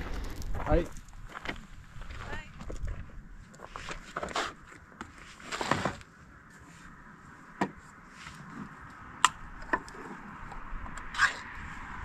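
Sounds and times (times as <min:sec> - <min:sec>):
rustle: 0:00.0 - 0:09.0.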